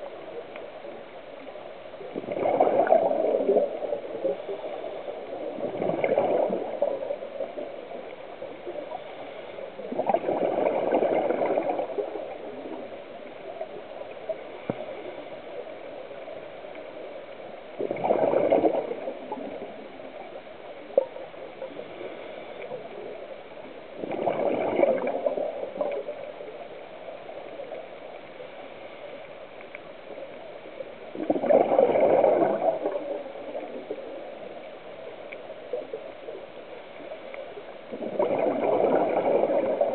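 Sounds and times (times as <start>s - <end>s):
faint steady hiss: 0.0s - 39.9s
bubbles from diver's exhaled breath: 2.1s - 4.5s, 5.4s - 7.2s, 9.8s - 12.8s, 17.8s - 19.9s, 24.0s - 26.3s, 31.1s - 33.9s, 37.9s - 39.9s.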